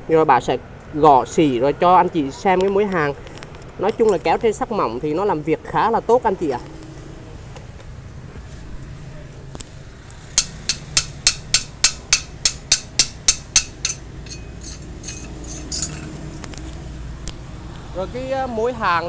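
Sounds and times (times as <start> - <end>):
hammer tapping on metal: 10.4 - 16.1.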